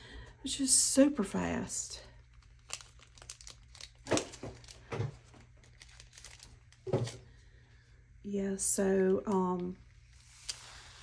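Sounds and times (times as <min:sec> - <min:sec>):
plastic crinkling: 0:02.1 - 0:07.3.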